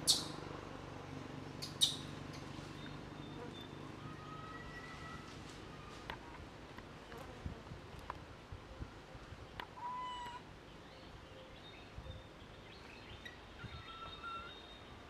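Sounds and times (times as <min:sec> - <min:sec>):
macaque squeaky calls: 0:00.0 - 0:00.4, 0:01.6 - 0:02.1.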